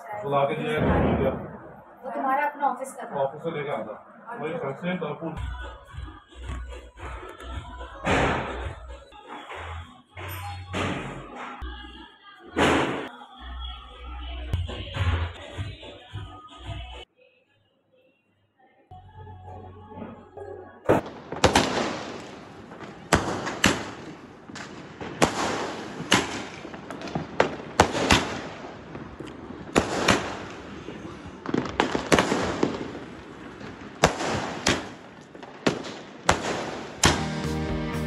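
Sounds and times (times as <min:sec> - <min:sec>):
fireworks bangs: 0:00.0 - 0:02.3, 0:05.4 - 0:13.2, 0:20.9 - 0:37.5
music: 0:05.4 - 0:21.1, 0:37.0 - 0:38.0
fireworks crackling: 0:20.9 - 0:38.0.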